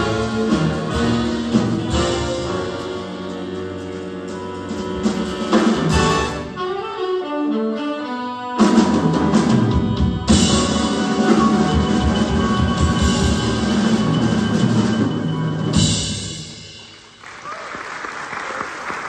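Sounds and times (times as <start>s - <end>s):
jazz big band playing: 0.0s - 17.3s.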